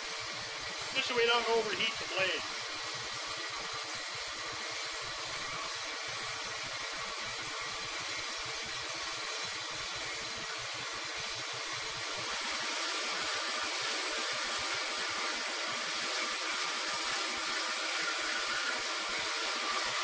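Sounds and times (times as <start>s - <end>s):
bandsaw cutting steel: 0.7s - 2.6s.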